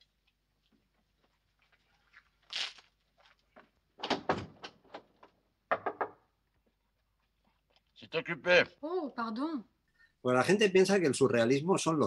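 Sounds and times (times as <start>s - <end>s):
knocks and rattles at door: 4.0s - 5.1s, 5.7s - 6.2s.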